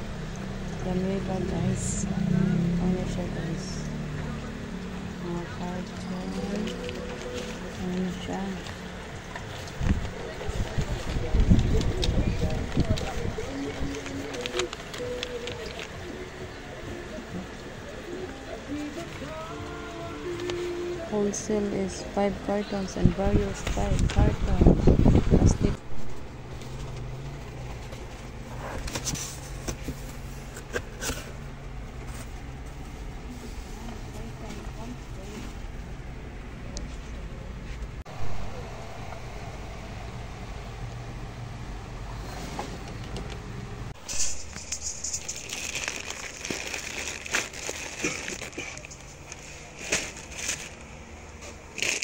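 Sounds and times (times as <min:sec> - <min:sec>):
steady low hum: 0:00.0 - 0:51.8
plastic packets crinkling: 0:11.6 - 0:16.0, 0:44.0 - 0:52.0
rustles and clicks: 0:26.0 - 0:35.7, 0:42.2 - 0:52.0.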